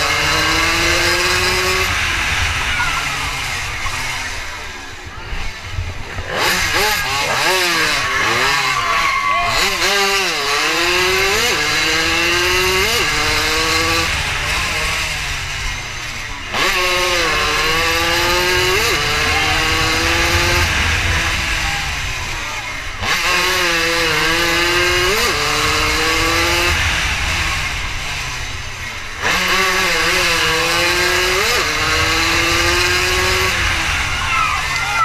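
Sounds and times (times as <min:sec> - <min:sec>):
racing motorcycle engine revving: 0:00.0 - 0:35.0
wind rushing over microphone: 0:16.8 - 0:28.8, 0:29.7 - 0:34.9.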